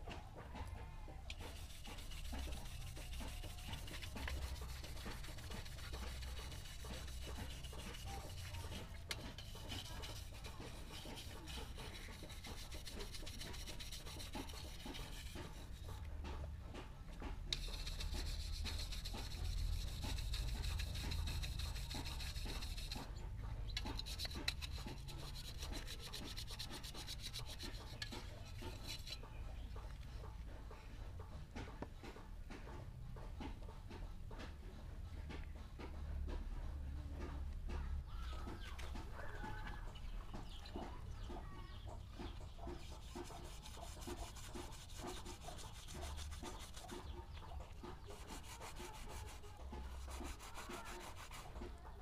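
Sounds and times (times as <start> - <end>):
wire brush scrubbing metal: 1.3 - 16.0, 17.5 - 29.4, 42.2 - 52.0.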